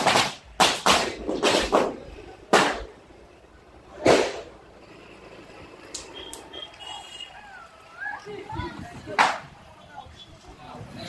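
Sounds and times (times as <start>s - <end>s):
loud bangs with echo: 0.0s - 3.0s
sharp bangs: 0.0s - 3.0s, 4.0s - 4.6s.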